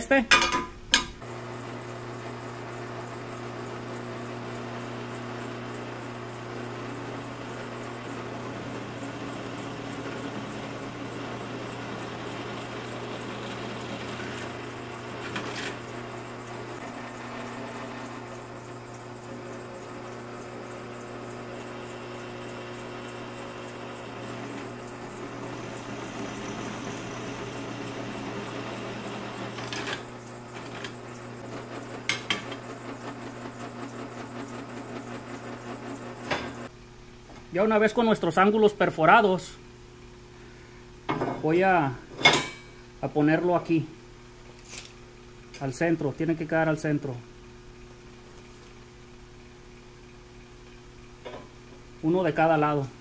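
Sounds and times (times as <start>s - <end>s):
drill press motor running: 1.2s - 36.8s
drill bit cutting steel: 3.2s - 36.7s.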